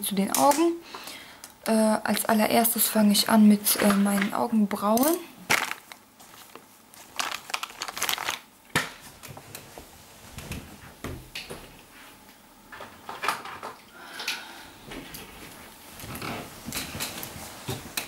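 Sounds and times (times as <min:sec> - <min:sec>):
rummaging small objects: 0:05.0 - 0:08.4.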